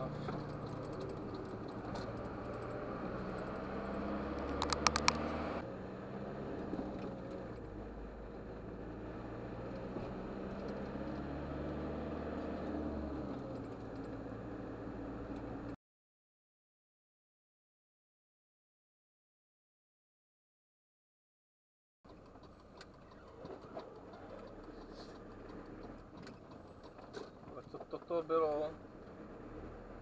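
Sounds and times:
truck engine droning: 0.0s - 15.8s, 22.1s - 30.0s
sharp clicks: 4.4s - 5.3s.

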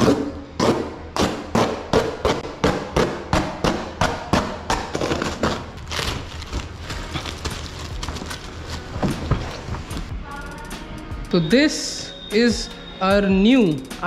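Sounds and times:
plastic wrapping rustling: 4.9s - 10.1s.

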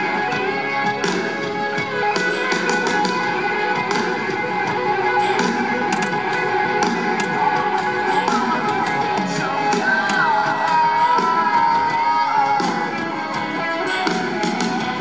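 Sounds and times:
bending guitar note: 0.0s - 15.0s
rock band playing: 0.0s - 15.0s.

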